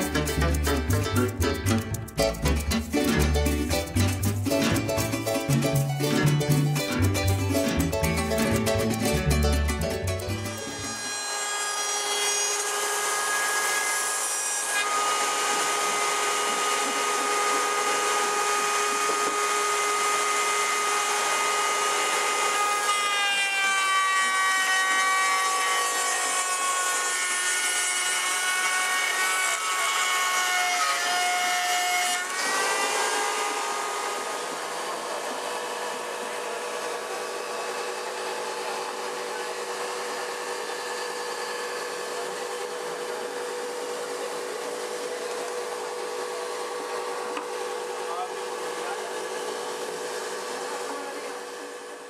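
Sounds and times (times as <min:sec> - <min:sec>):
power tool motor whine: 0:10.5 - 0:31.6, 0:32.2 - 0:52.0.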